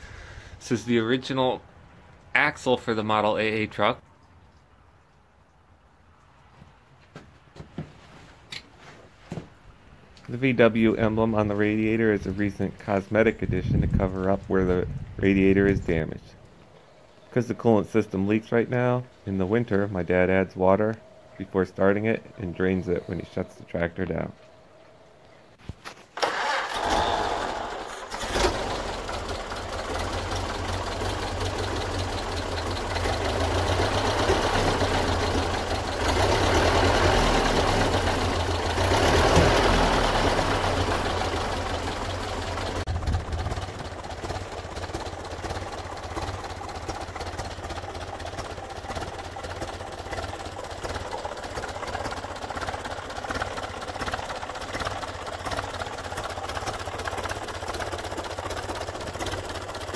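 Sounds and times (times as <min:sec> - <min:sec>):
tractor engine starting and running: 0:00.0 - 0:04.0, 0:09.3 - 0:16.7, 0:25.6 - 0:59.9.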